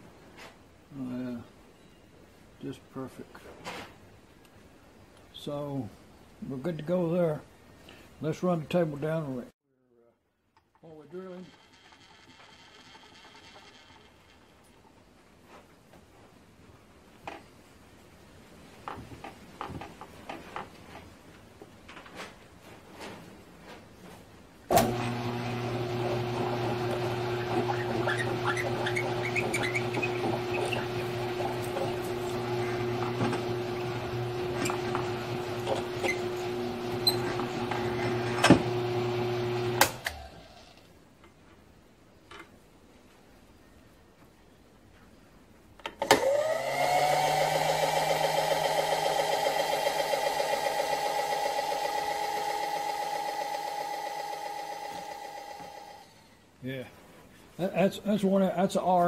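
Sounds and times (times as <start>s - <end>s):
drill boring into aluminum: 24.7s - 40.2s, 46.1s - 56.2s
drill motor humming: 24.7s - 40.2s, 46.2s - 56.2s.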